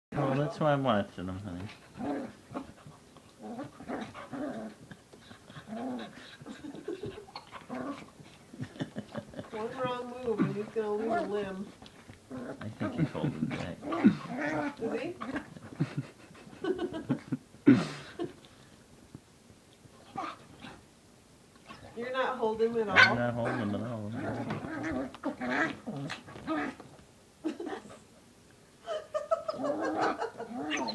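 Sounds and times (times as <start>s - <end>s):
dogs growling and whining: 1.7s - 17.4s, 20.0s - 20.8s, 22.9s - 27.0s, 28.9s - 30.9s
dog whining: 20.0s - 20.8s, 29.4s - 30.9s
dogs barking playfully: 22.9s - 23.8s.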